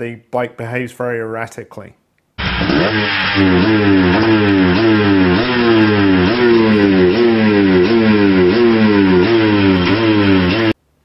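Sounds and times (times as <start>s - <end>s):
dirt bike engine surging: 2.4s - 10.8s.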